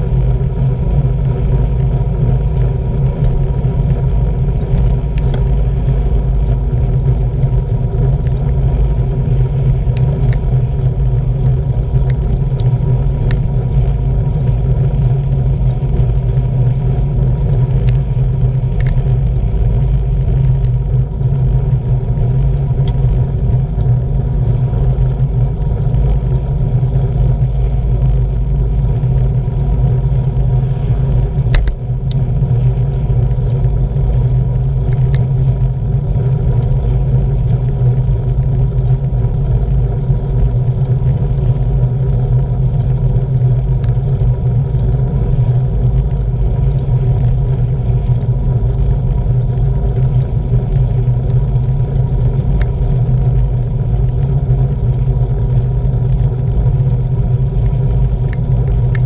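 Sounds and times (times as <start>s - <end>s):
tyres on tarmac: 0.0s - 59.0s
wind rumble: 0.0s - 59.0s
light clicks and rattles: 17.6s - 26.3s.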